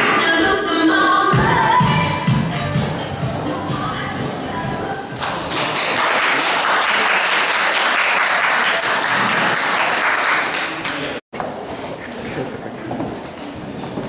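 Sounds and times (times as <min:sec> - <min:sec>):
crowd clapping: 0:05.2 - 0:11.2.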